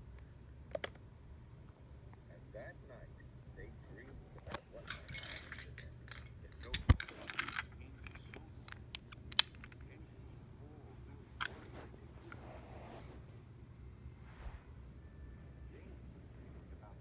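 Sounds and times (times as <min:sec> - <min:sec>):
low steady hum: 0:00.0 - 0:17.0
sharp handling clicks and knocks: 0:04.5 - 0:10.0.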